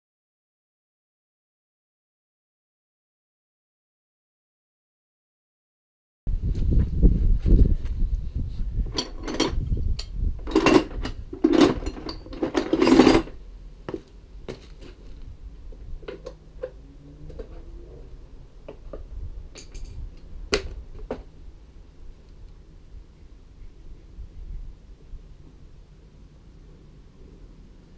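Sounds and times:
wheel brace clanking on nuts: 8.9s - 13.4s.

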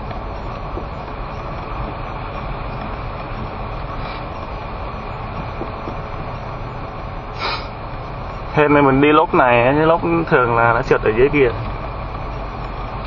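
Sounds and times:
tyres on packed snow: 0.0s - 7.8s
car road and engine noise: 0.0s - 13.0s.

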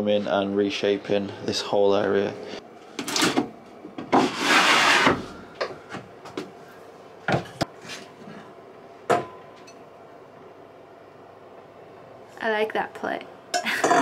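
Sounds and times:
wooden drawer scraping: 4.1s - 5.3s
kitchenware knocks and clatters: 13.6s - 14.0s.

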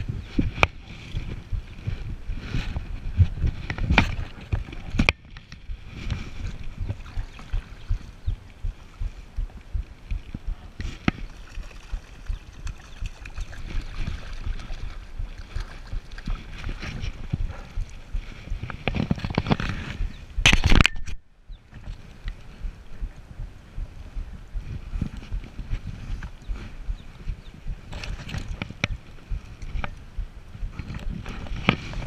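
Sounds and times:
creek water running over riffle: 0.0s - 20.0s
wind buffeting microphone: 0.0s - 32.0s.

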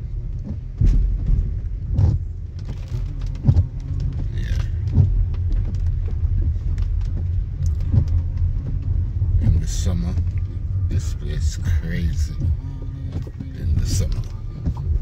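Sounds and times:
car road rumble from inside: 0.0s - 15.0s
low thump: 0.5s - 2.2s.

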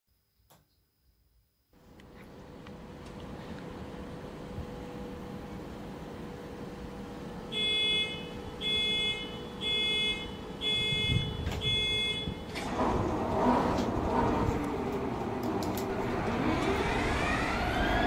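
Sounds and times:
rushing noise: 12.6s - 18.0s.

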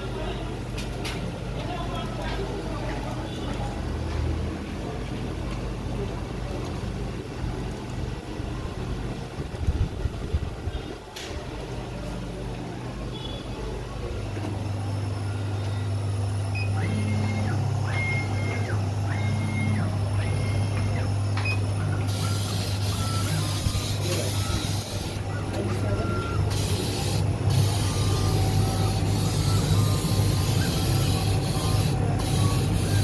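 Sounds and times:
laser cutting machine humming: 0.0s - 33.0s
motors whining: 14.0s - 33.0s.

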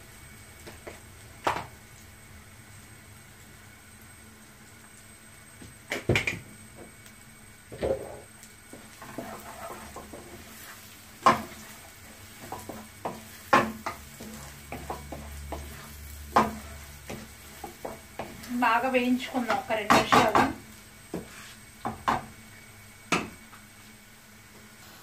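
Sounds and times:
spatula scraping frying pan: 8.8s - 22.2s
spatula knocking against pan: 12.5s - 18.4s, 19.4s - 21.3s, 21.9s - 22.3s.

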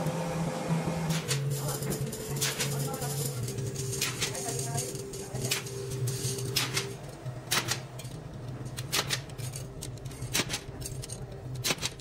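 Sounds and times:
steady low hum: 0.0s - 12.0s
metallic clicks and clinks: 7.5s - 12.0s.

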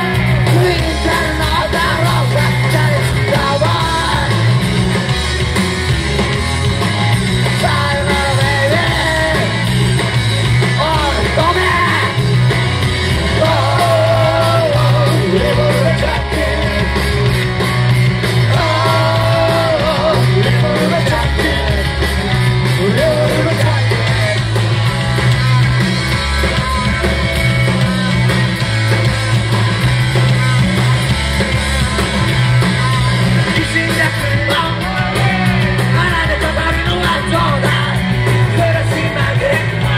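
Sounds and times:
lead singer singing: 0.0s - 4.8s, 7.4s - 9.7s, 10.7s - 12.3s, 13.1s - 17.3s, 18.4s - 24.5s, 32.8s - 39.9s
bass line: 0.0s - 39.9s
drums: 0.0s - 39.9s
electric guitar: 0.0s - 39.9s
live rock band playing: 0.0s - 39.9s.

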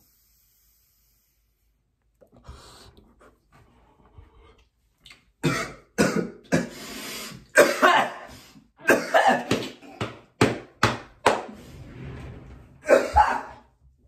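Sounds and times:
man coughing: 5.4s - 6.7s, 7.5s - 10.0s, 12.8s - 13.6s.

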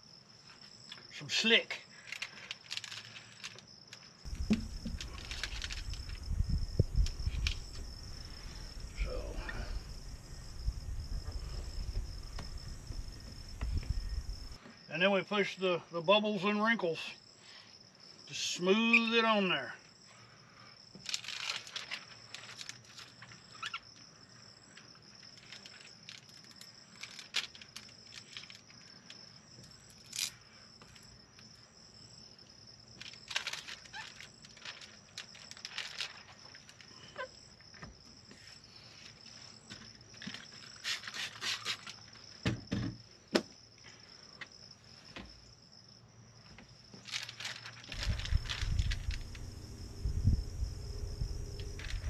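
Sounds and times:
crickets chirping: 0.0s - 52.0s
plastic film crinkling and scraping: 2.0s - 3.6s, 4.3s - 6.4s, 21.0s - 23.7s, 25.2s - 28.8s, 33.0s - 37.2s, 39.0s - 42.2s, 47.0s - 49.6s
dull knocks: 4.3s - 5.2s.

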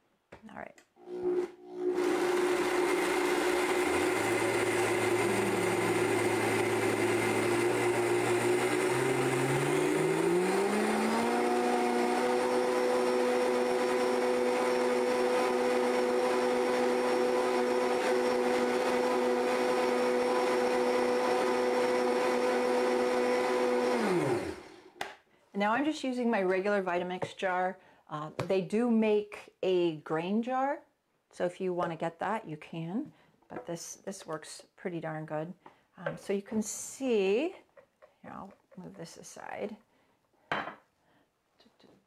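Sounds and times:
blender grinding oats: 1.0s - 25.0s.

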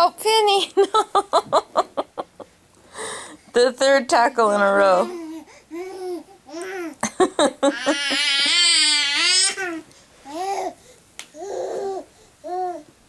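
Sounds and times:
baby babbling: 5.0s - 7.0s, 8.0s - 10.8s, 11.4s - 12.9s.

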